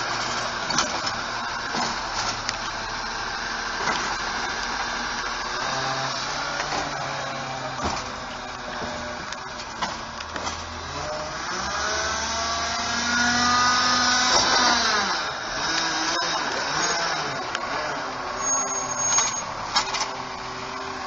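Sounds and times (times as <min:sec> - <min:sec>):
truck engine revving: 0:00.0 - 0:21.0.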